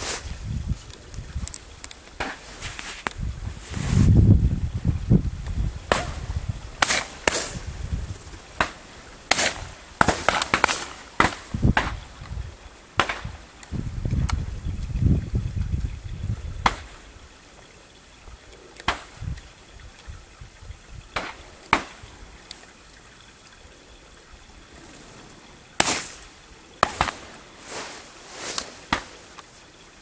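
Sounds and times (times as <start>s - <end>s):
shotgun shots: 25.8s - 26.2s, 26.8s - 27.3s.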